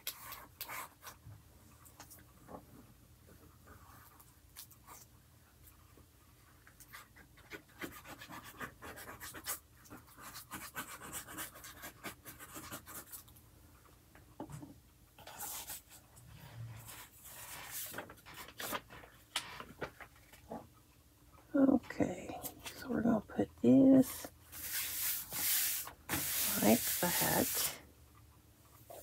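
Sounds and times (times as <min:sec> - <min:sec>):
paper rustling: 0:16.9 - 0:20.4
glue stick rubbing on paper: 0:24.6 - 0:27.8.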